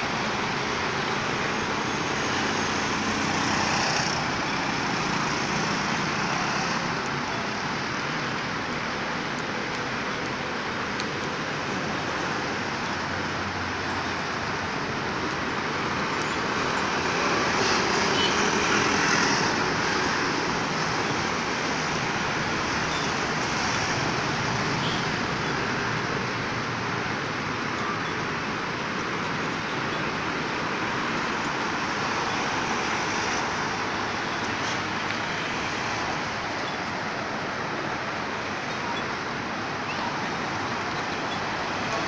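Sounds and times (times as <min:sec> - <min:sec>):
road traffic noise: 0:00.0 - 0:42.0.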